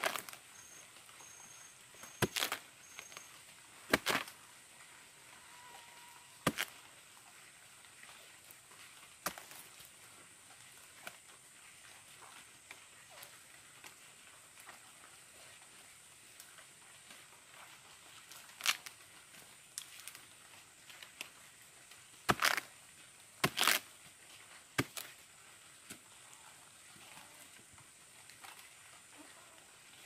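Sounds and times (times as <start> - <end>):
wet pith crunching and tearing: 2.1 - 3.2, 3.9 - 4.4, 6.4 - 6.8, 18.5 - 18.9, 22.2 - 22.7, 23.4 - 23.9, 24.8 - 25.1.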